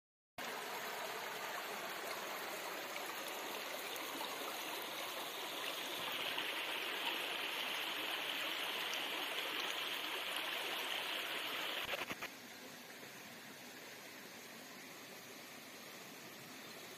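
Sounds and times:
stream running over rocks: 0.4 - 16.9.

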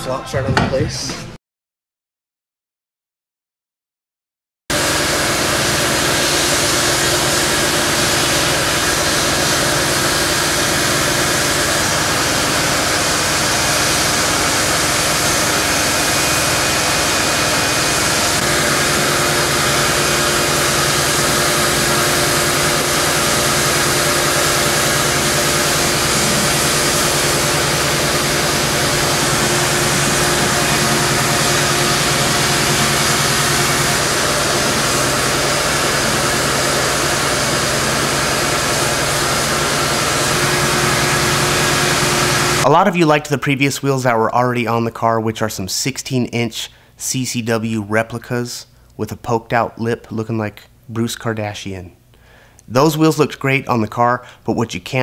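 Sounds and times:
loud mechanical drone with hiss: 4.7 - 42.8.

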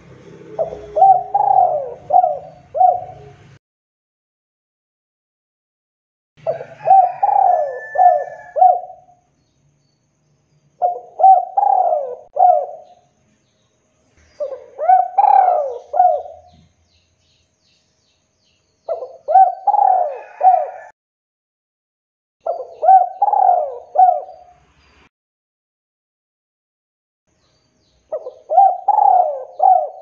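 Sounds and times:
dove cooing: 0.4 - 3.6, 6.4 - 9.2, 10.8 - 13.0, 14.4 - 16.7, 18.9 - 20.9, 22.4 - 24.5, 28.1 - 30.0.

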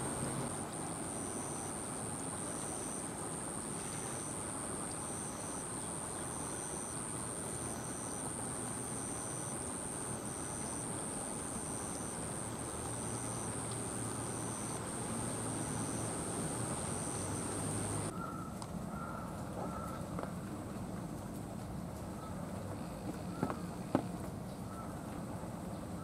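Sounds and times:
insects buzzing: 0.0 - 18.1.

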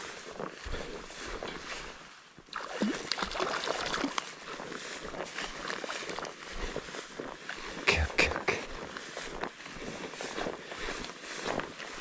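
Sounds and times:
rush of water: 2.5 - 4.2
fish splashing at the surface: 2.5 - 4.3.

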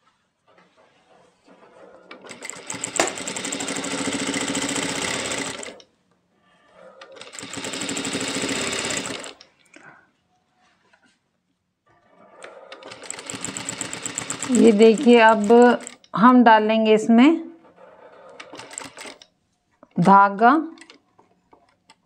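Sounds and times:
sewing machine stitching: 1.6 - 5.8, 7.0 - 9.5, 12.4 - 16.0, 17.8 - 19.2.

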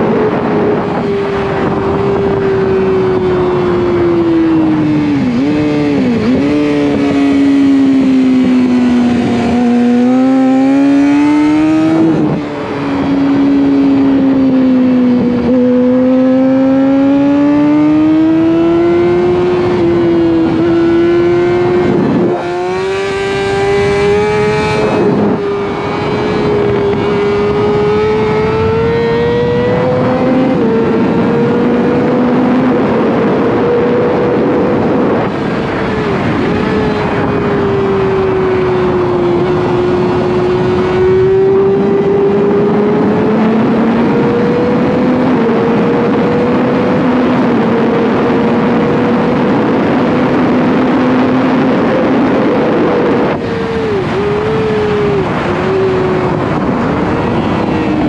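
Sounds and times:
motorcycle engine revving hard: 0.0 - 58.0
wind noise rushing: 0.0 - 58.0.

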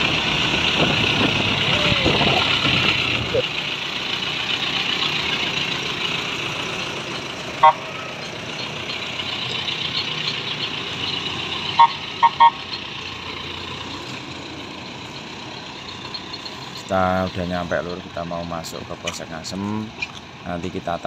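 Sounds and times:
tow truck engine running: 0.0 - 21.0
vehicle horn tooting: 7.6 - 8.0, 11.7 - 12.6.

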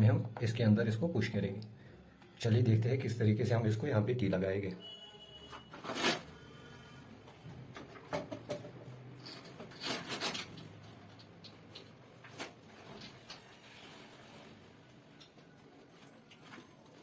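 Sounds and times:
plastic scraping against metal: 5.6 - 6.3, 9.2 - 10.8.

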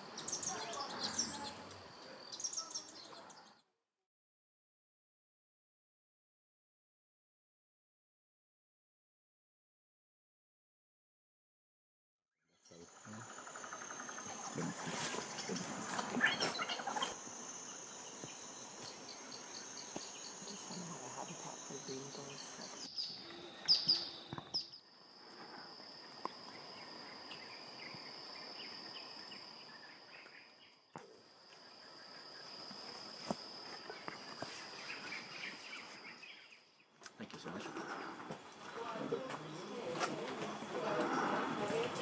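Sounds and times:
sharp bird chirps: 12.5 - 25.0
high-pitched insect drone: 12.7 - 36.7.

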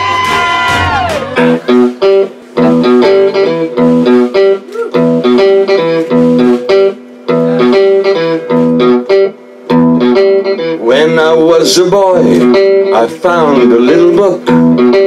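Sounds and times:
electric guitar chord stabs: 0.0 - 11.3.

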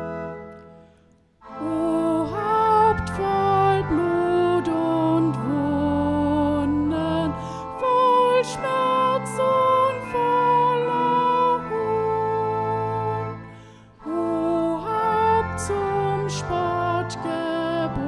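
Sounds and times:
organ: 0.0 - 18.0
hymn singing: 1.4 - 18.0.

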